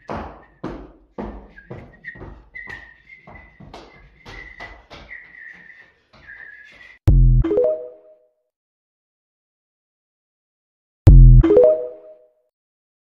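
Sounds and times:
dancing feet stomping on tiles: 0.0 - 7.0
high steady whistle: 0.0 - 7.0.

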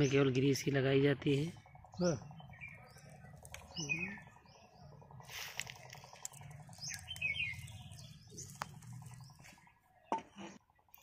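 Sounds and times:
small birds chirping: 0.0 - 11.0
low background rumble: 0.7 - 10.0
sharp clicks: 3.3 - 3.8.

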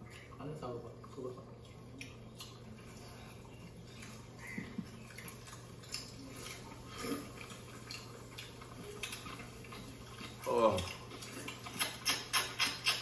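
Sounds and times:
people chewing: 0.0 - 13.0
lip smacks: 3.8 - 13.0.

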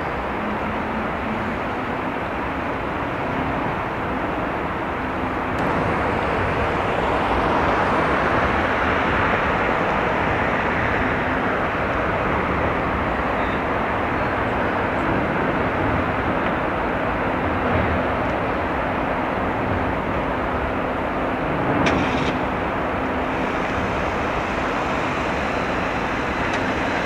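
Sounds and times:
outdoor rumble: 5.2 - 13.4.

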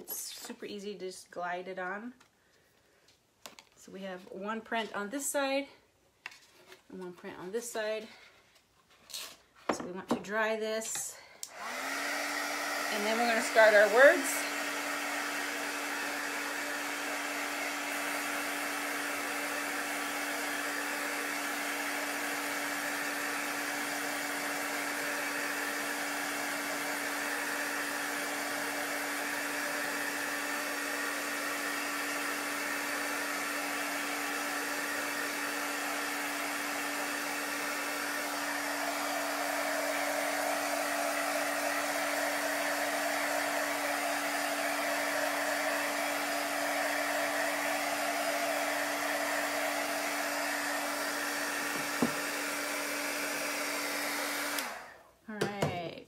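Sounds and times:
heat tool blowing: 10.9 - 55.0.

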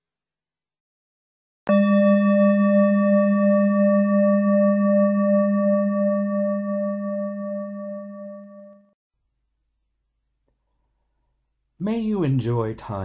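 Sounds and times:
singing bowl ringing: 1.7 - 9.0.

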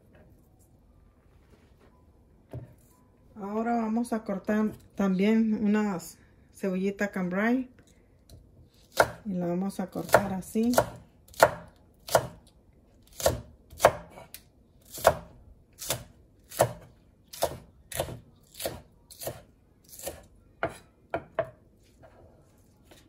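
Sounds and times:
knife chopping on cutting board: 8.9 - 9.2, 10.0 - 12.4, 13.1 - 21.6.

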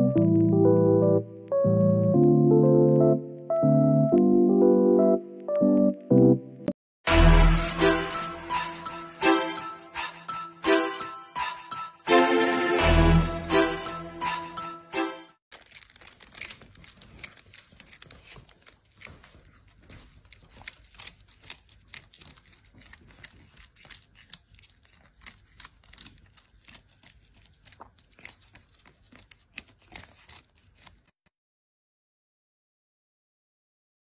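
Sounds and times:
kitten crunching a snack: 15.5 - 31.3.

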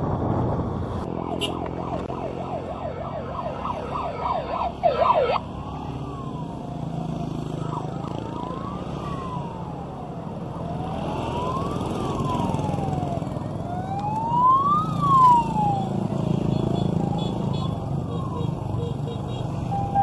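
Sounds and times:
motorcycle engines passing: 0.1 - 20.0
siren wailing: 1.1 - 19.0, 19.6 - 20.0.

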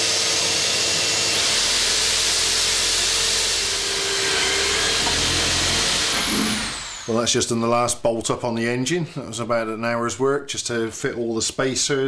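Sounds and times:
electric drill cutting plywood: 0.0 - 7.4
vacuum cleaner running: 0.0 - 7.5.

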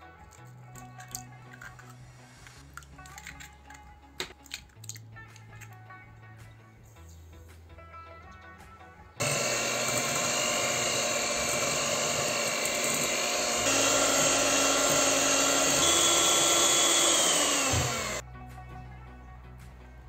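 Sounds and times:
electric hand mixer whirring: 9.2 - 18.2.

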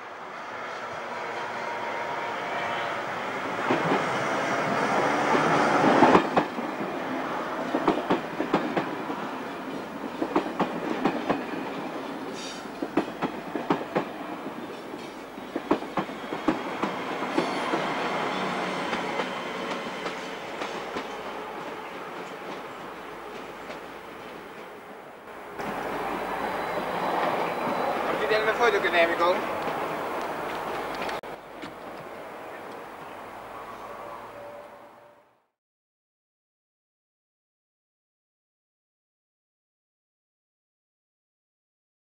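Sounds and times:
train passing: 0.0 - 35.5
wheels clicking over rail joints: 25.6 - 32.8.

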